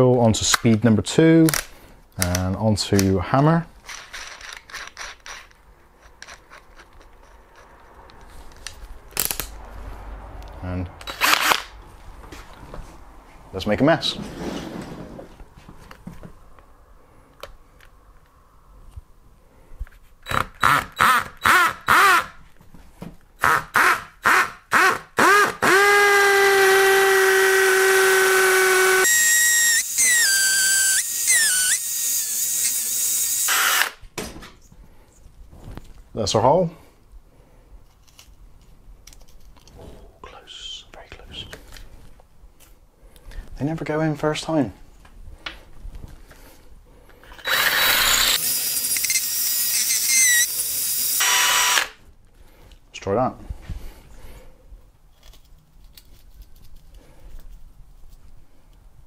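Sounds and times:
drill chuck rubbing and clicking: 3.8 - 9.4, 27.4 - 34.0, 47.3 - 51.9
hammer drill drilling masonry: 20.2 - 22.4, 23.4 - 34.0, 47.4 - 52.0.

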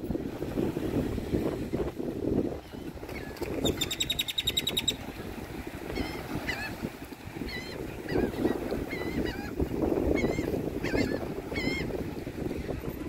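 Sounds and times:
bird squeaky whistled notes: 3.6 - 5.0.

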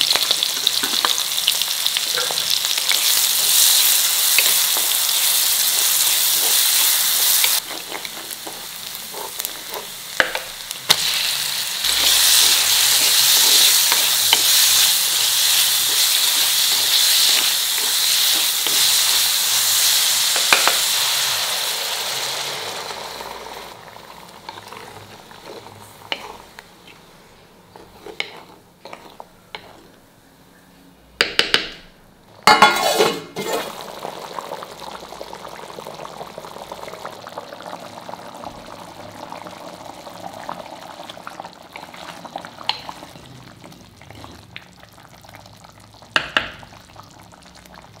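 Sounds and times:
prawns sizzling in hot oil: 0.0 - 26.5
curry simmering and bubbling: 23.7 - 30.0, 33.5 - 48.0
spoon stirring and clinking in pan: 27.7 - 29.9.

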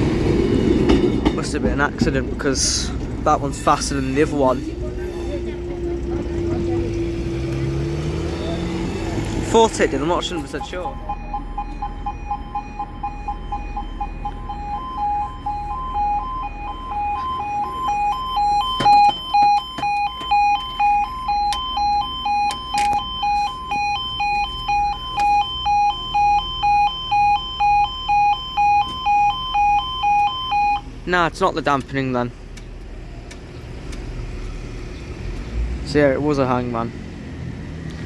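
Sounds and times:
level crossing warning alarm: 3.6 - 31.0.

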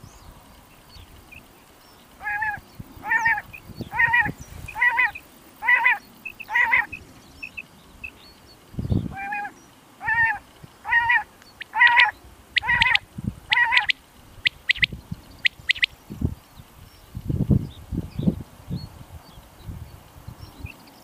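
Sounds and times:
quail calling: 2.2 - 8.2, 9.0 - 15.9.

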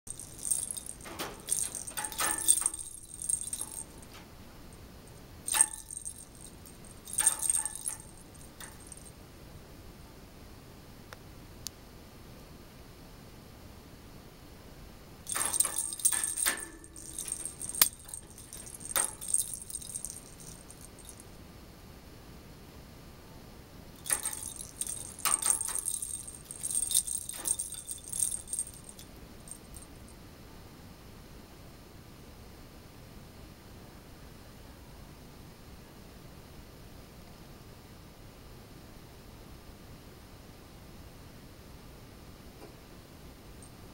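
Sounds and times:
small bell jingling and rattling: 0.1 - 4.1, 5.5 - 9.1, 15.3 - 21.2, 24.0 - 30.0.

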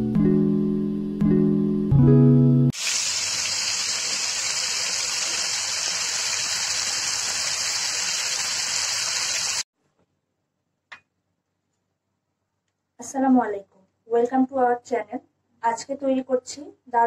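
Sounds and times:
skewers sizzling in oil: 2.8 - 9.6.

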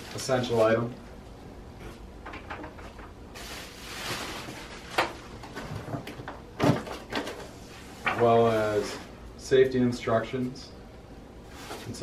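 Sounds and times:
packing material rustling: 3.4 - 5.6.

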